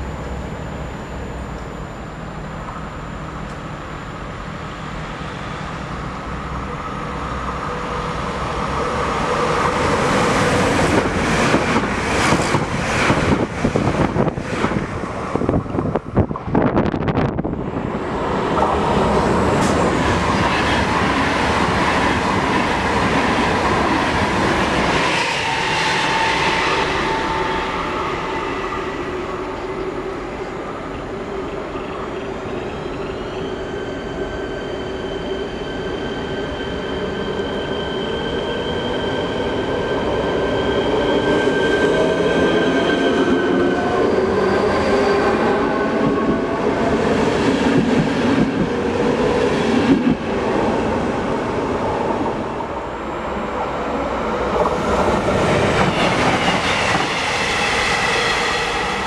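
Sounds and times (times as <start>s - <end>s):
electric train drive whine: 0.0s - 33.1s
rail and wheel noise: 0.0s - 59.0s.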